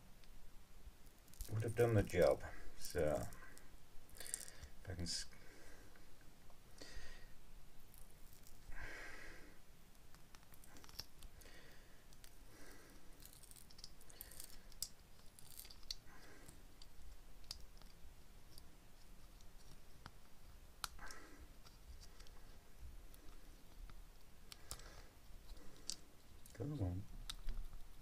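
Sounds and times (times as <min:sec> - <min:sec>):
mould peeling clicks and scratches: 0:10.0 - 0:11.4, 0:13.2 - 0:28.0.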